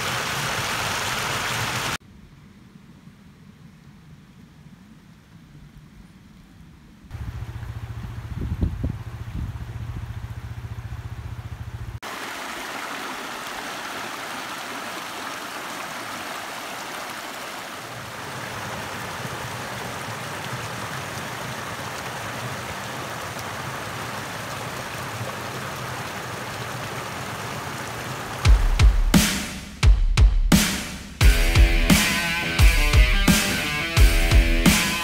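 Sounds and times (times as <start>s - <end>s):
stream splashing over rocks: 0.0s - 2.0s, 12.0s - 28.8s.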